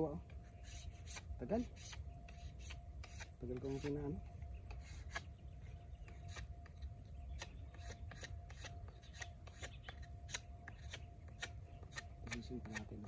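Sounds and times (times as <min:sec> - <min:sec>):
knife whittling wood: 0:00.6 - 0:04.1, 0:07.4 - 0:13.0.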